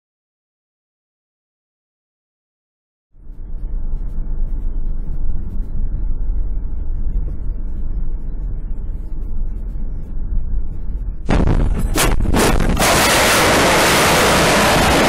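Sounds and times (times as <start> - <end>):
car cabin rumble: 3.2 - 15.0.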